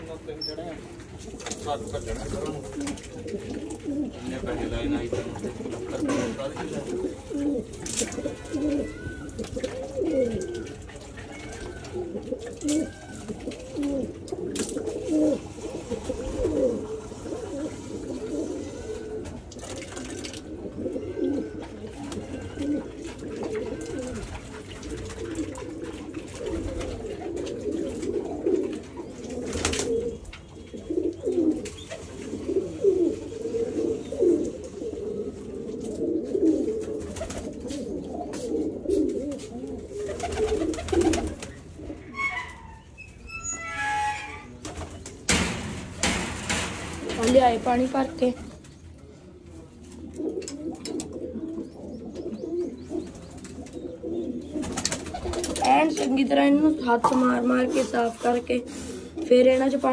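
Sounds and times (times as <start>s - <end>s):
pigeons cooing: 0.0s - 43.6s, 44.4s - 59.9s
sharp knocks: 45.3s - 47.5s.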